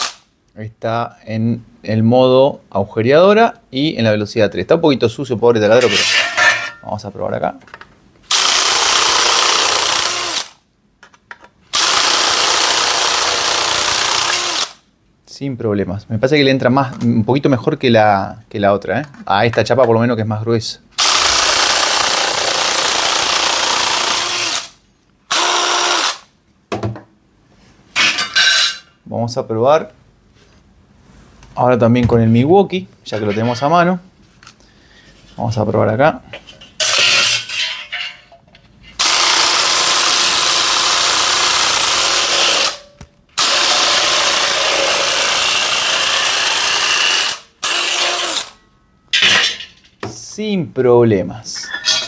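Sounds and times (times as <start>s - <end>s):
shear blades cutting sheet steel: 5.8s - 6.7s, 36.8s - 38.2s.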